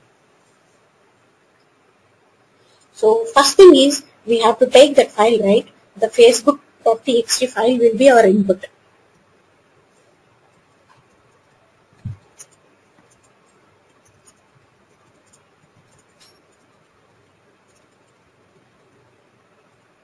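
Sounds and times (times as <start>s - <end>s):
typing on keyboard: 10.8s - 19.0s.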